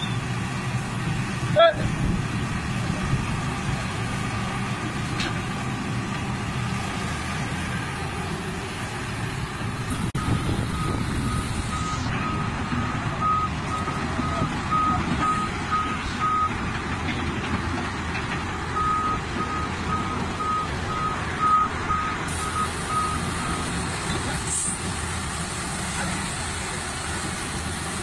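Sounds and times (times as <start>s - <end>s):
low engine rumble: 0.0s - 28.0s
excavator travel alarm beeping: 10.2s - 16.6s, 18.7s - 23.8s.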